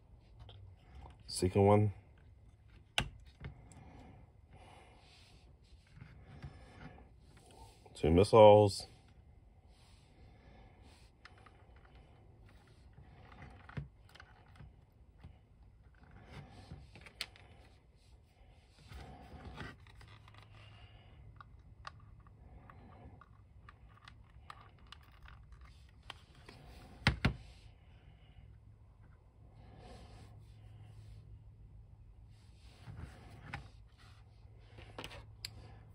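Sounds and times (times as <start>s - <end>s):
plastic parts clicking and scraping: 10.9s - 17.8s, 18.8s - 27.6s, 32.7s - 35.9s.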